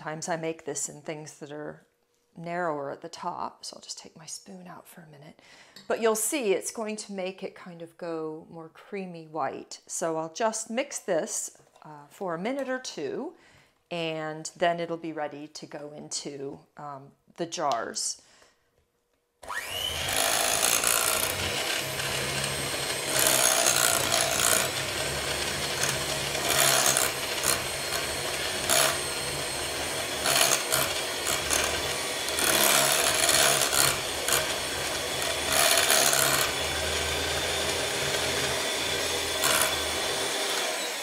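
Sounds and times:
electric hand mixer humming: 19.4 - 41.0
beater scraping sugar on glass: 19.9 - 40.6.

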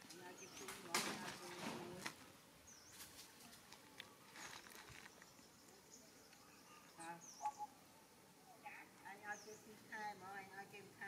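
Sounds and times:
soft clicks and rustles: 2.9 - 6.4.

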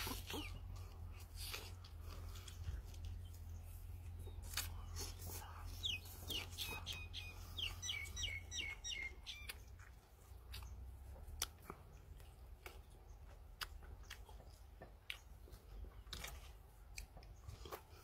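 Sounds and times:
chewing with mouth clicks: 0.0 - 18.0
bird chirping: 3.1 - 10.9.

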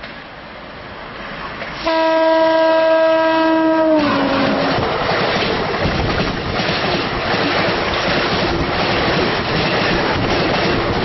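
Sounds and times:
train coaches rushing past: 0.0 - 11.0
locomotive horn blowing: 1.8 - 4.9.

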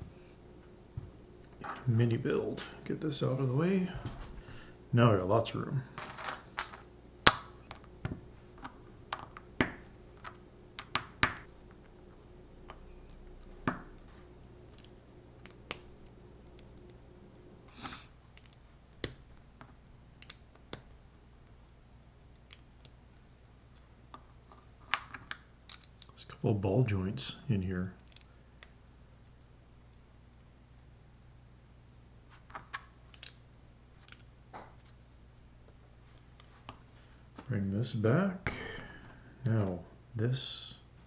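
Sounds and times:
plastic pieces snapping together: 17.7 - 20.9, 32.5 - 33.4.

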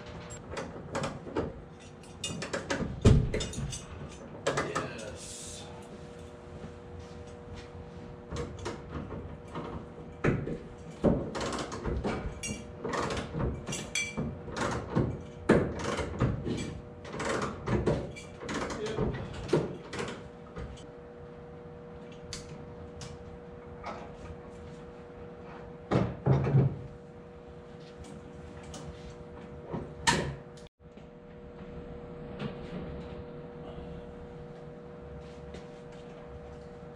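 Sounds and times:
steady hum: 0.0 - 11.4, 18.6 - 36.9.

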